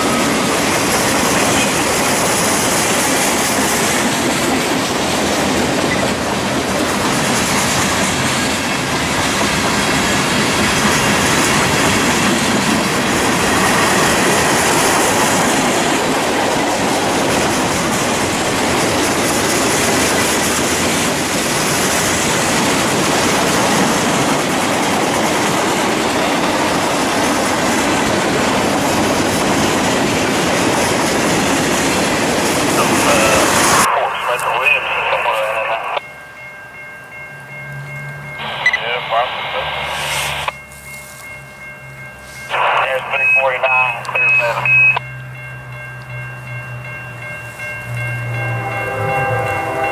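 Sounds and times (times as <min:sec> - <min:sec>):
train wheels rumbling on rails: 0:00.0 - 0:33.9.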